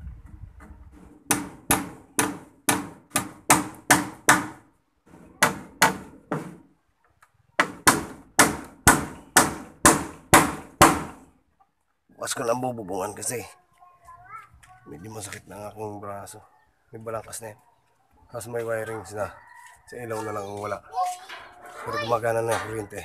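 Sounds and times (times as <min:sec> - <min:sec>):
claw hammer striking wood: 0:01.3 - 0:04.7, 0:05.4 - 0:06.6, 0:07.6 - 0:11.3.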